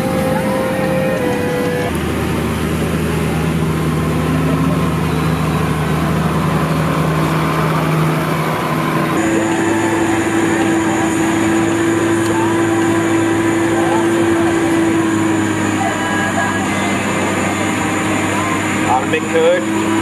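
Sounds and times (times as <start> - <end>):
diesel tractor engines running: 0.0 - 20.0
tractor engine labouring under load: 0.0 - 20.0.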